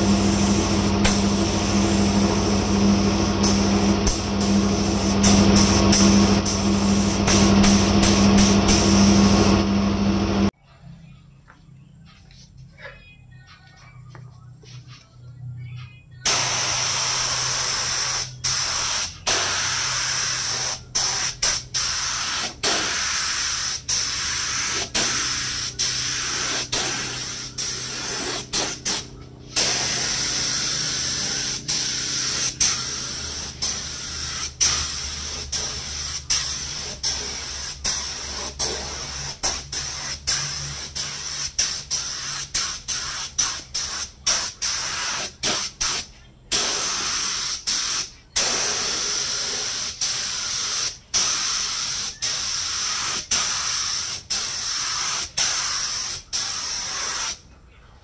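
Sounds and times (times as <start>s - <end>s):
spray gun hissing: 0.0s - 10.5s, 16.3s - 57.4s
faint low hum: 0.0s - 17.0s.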